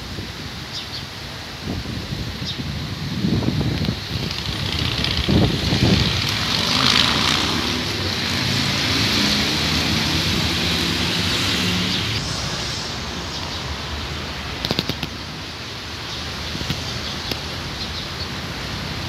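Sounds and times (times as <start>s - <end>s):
rustling tree leaves: 0.0s - 19.0s
wind buffeting microphone: 1.4s - 15.6s.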